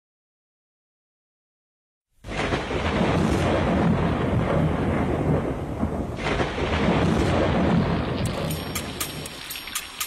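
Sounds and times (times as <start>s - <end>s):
steady rain: 2.2s - 10.0s
low rolling thunder: 2.3s - 9.4s.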